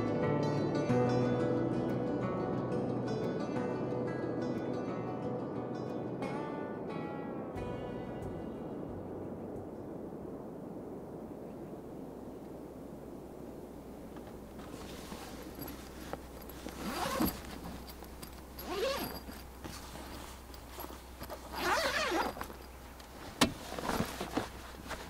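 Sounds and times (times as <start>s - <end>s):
fabric rustling: 14.1s - 25.0s
zipper being drawn: 16.5s - 18.0s, 18.6s - 20.2s, 20.8s - 22.4s.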